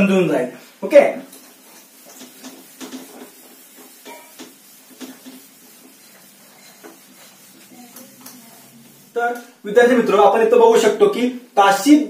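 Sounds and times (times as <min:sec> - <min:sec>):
eraser wiping whiteboard: 0:01.3 - 0:09.4.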